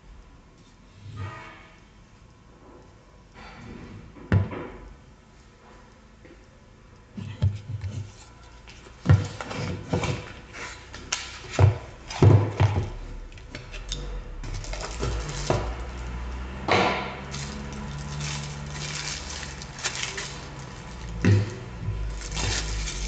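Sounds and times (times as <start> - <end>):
box scraping and rustling: 17.3 - 23.0.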